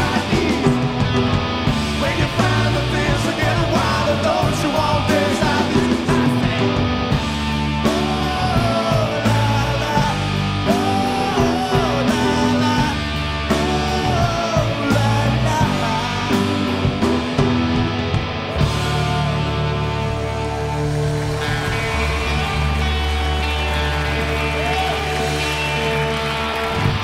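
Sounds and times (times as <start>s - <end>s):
rock band playing live: 0.0s - 27.0s.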